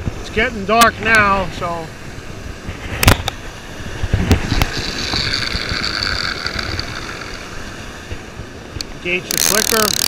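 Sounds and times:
surf washing: 0:00.0 - 0:10.0
fishing reel knocks: 0:04.4 - 0:07.5, 0:09.2 - 0:10.0
fishing reel spool whirring: 0:04.5 - 0:08.0, 0:09.2 - 0:10.0.

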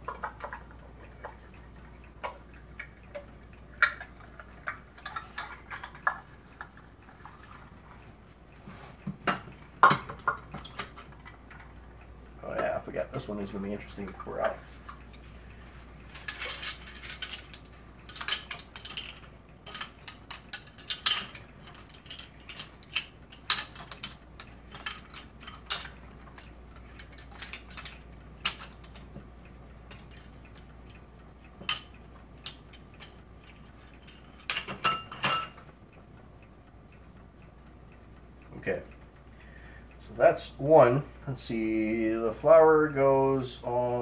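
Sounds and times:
kitchen utensils clattering: 0:03.8 - 0:06.3, 0:16.2 - 0:26.0, 0:33.0 - 0:35.6.

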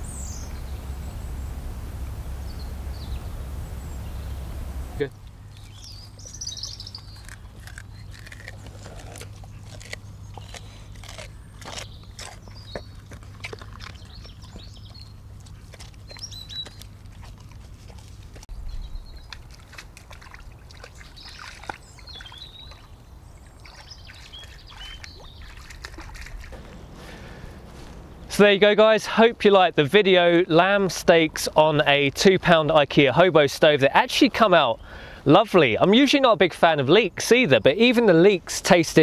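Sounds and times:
birds chirping: 0:00.0 - 0:19.6, 0:20.8 - 0:32.8, 0:33.8 - 0:39.0
dog chewing: 0:00.1 - 0:22.4, 0:24.1 - 0:28.2
dog wading in water: 0:19.0 - 0:28.1.

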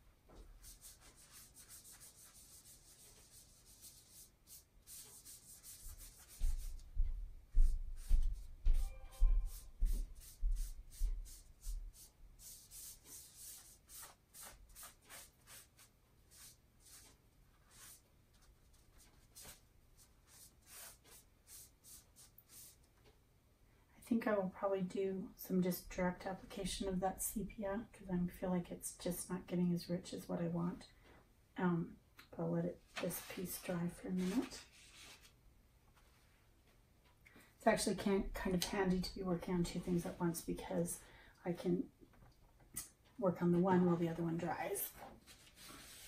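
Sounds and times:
paper towel rubbing and dabbing: 0:00.4 - 0:22.8, 0:45.3 - 0:46.0.

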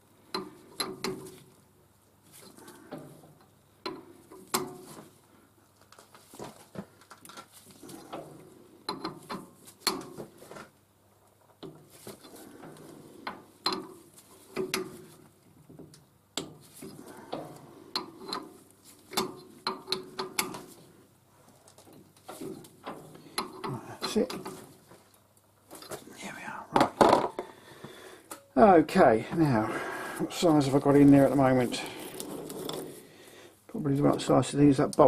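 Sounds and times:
metal clicks and knocks: 0:08.1 - 0:10.3, 0:12.6 - 0:16.6, 0:17.3 - 0:20.8.

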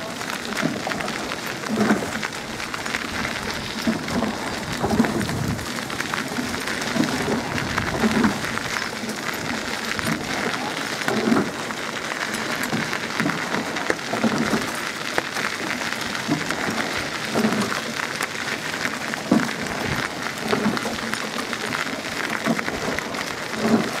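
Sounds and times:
oars splashing water: 0:00.0 - 0:24.0.

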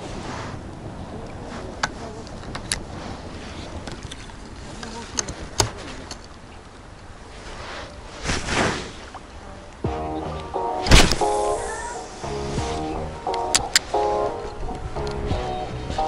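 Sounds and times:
wind on microphone: 0:00.0 - 0:09.9, 0:10.8 - 0:16.0
handling clicks and knocks: 0:01.8 - 0:02.9, 0:03.8 - 0:07.1, 0:13.3 - 0:15.2.

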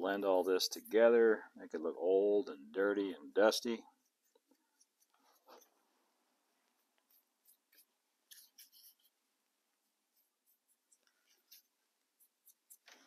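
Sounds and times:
chalk rubbing strokes: 0:03.9 - 0:05.8, 0:06.8 - 0:09.2, 0:09.8 - 0:13.0.

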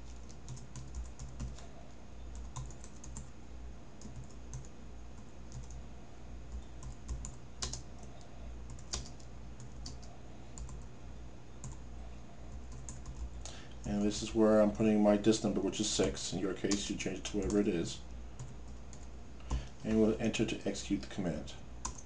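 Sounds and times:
keyboard typing: 0:00.0 - 0:01.6, 0:02.3 - 0:03.3, 0:04.0 - 0:05.8, 0:06.5 - 0:10.9, 0:11.6 - 0:11.8, 0:12.5 - 0:14.0
low steady hum: 0:00.0 - 0:22.0.

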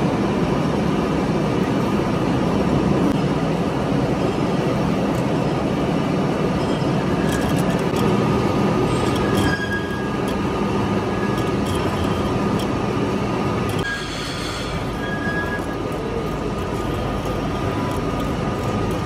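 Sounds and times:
lathe grinding steel: 0:06.8 - 0:19.0
thin whining tones: 0:08.8 - 0:19.0
sharp clicks of metal chips: 0:11.2 - 0:12.8.

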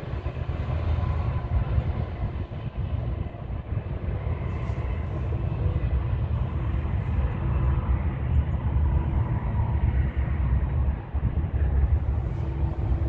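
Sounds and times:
distant diesel locomotive rumble: 0:00.0 - 0:13.0
faint engine whine: 0:00.0 - 0:13.0.

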